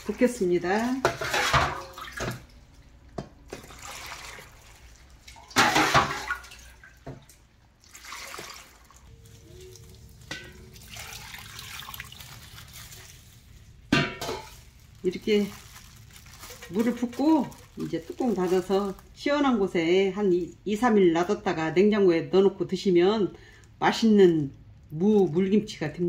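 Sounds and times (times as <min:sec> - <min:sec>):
brine pouring and splashing: 0:03.4 - 0:19.2.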